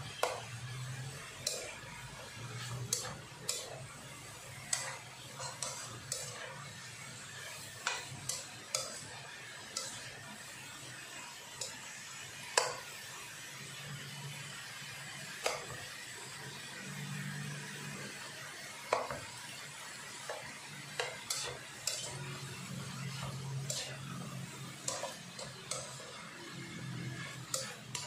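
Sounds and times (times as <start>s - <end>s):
spatula tapping and scraping pan: 0.0s - 10.4s, 11.5s - 12.9s, 15.4s - 15.8s, 18.9s - 28.0s
vegetables sizzling: 0.0s - 28.0s.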